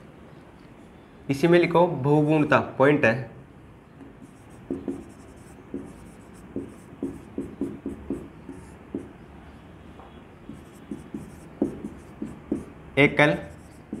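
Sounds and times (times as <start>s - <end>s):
pen scratching on paper: 4.2s - 9.1s, 10.5s - 12.7s, 13.3s - 14.0s.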